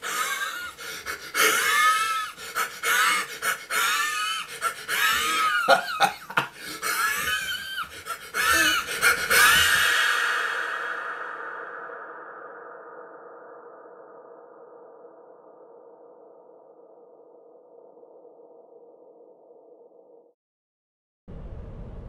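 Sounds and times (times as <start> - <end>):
man squealing and shrieking: 0.0 - 11.0.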